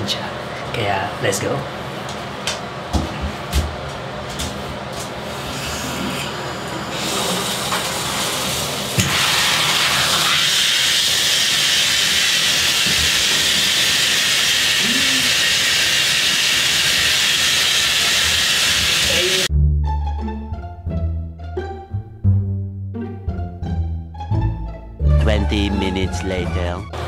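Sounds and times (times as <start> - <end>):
shower spray running into bathtub: 7.0 - 19.5.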